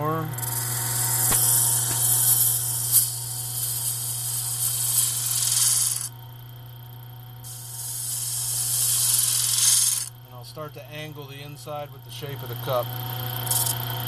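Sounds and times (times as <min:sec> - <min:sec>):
wood lathe motor hum: 0:00.0 - 0:06.2, 0:07.5 - 0:14.0
scraper hissing on spinning wood: 0:00.4 - 0:06.1, 0:07.5 - 0:10.1, 0:13.4 - 0:13.8.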